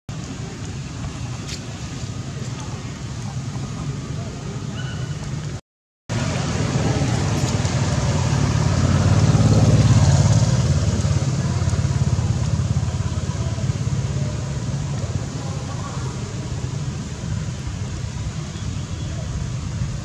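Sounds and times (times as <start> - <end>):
vehicle engine passing by: 6.1 - 18.5.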